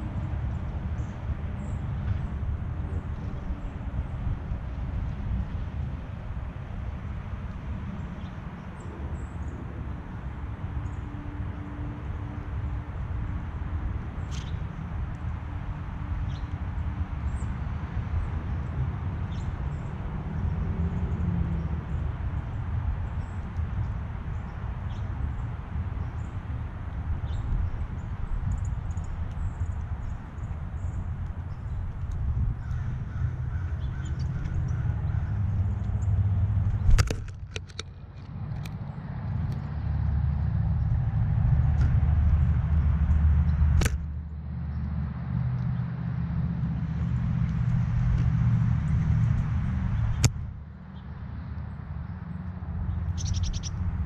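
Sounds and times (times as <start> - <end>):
low outdoor rumble: 0.0 - 54.0
sharp clicks: 36.7 - 38.8, 43.8 - 44.1
faint high bird chirps: 53.1 - 53.8.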